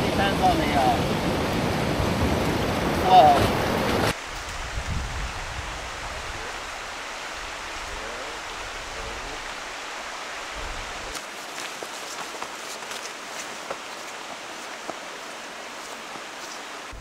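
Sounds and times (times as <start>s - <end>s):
stream water rushing: 0.0s - 17.0s
footsteps on dirt trail: 11.0s - 17.0s.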